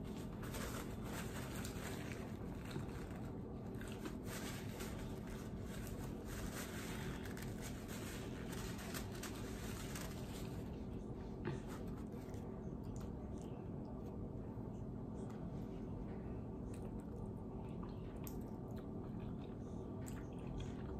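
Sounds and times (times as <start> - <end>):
paper rustling and crinkling: 0.0 - 12.5
steady low hum: 0.0 - 20.9
chewing and mouth noises: 16.6 - 20.9.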